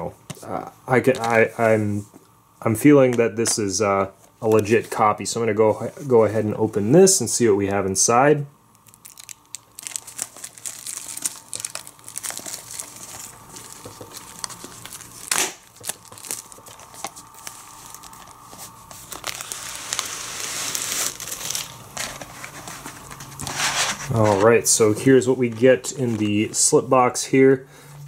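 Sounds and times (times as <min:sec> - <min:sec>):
plastic wrap ripping: 0:08.7 - 0:24.5
plastic wrap crinkling: 0:08.7 - 0:26.7.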